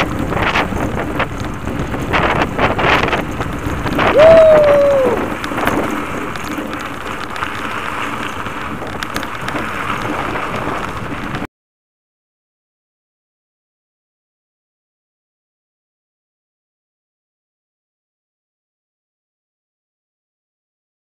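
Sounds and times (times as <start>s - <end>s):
wind buffeting microphone: 0.0s - 11.5s.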